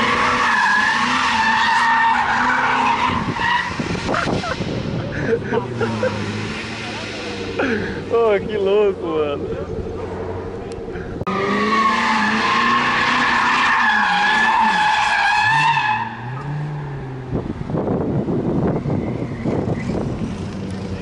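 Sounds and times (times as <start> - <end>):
car engine revving: 0.0 - 21.0
wind buffeting microphone: 3.1 - 5.6, 17.2 - 21.0.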